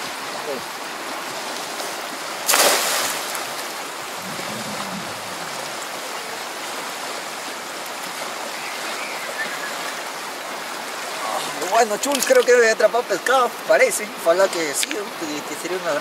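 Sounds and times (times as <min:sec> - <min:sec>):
river rushing over stones: 0:00.0 - 0:16.0
cast net splashing into water: 0:02.4 - 0:06.0.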